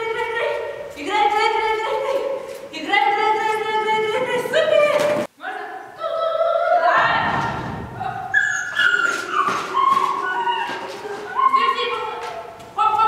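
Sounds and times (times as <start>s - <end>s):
small dog yelping and whining: 8.4s - 10.7s.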